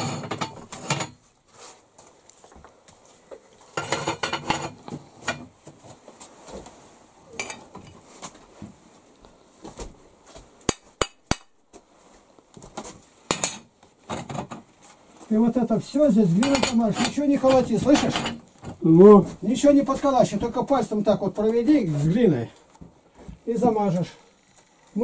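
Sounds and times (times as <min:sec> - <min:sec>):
clatter and scraping on a stove: 0:00.0 - 0:01.3, 0:03.6 - 0:05.8, 0:07.3 - 0:08.1, 0:13.3 - 0:14.9, 0:16.3 - 0:18.8.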